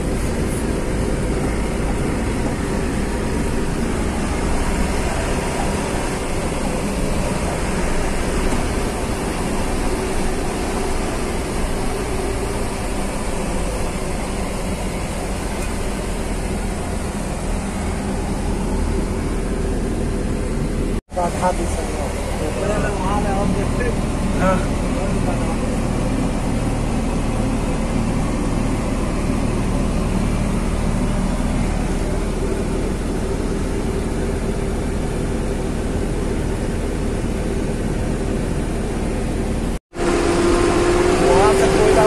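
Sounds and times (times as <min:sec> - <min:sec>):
heavy vehicle engine rumble: 0:00.0 - 0:42.0.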